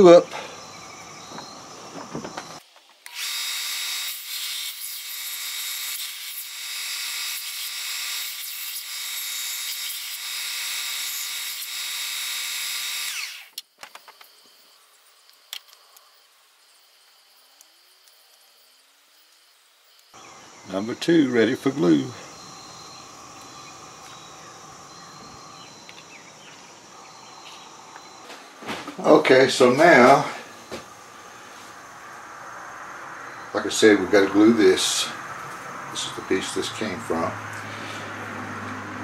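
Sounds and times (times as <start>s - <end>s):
faint insect chirping: 0.0s - 3.1s, 13.2s - 38.1s
belt sander motor whine: 0.9s - 14.0s, 20.2s - 32.0s.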